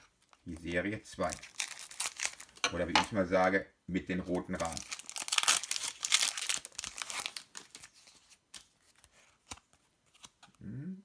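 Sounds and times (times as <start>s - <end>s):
foil wrapper tearing and crinkling: 1.2s - 2.6s, 4.6s - 7.9s
cards clicking and rustling: 4.6s - 10.6s.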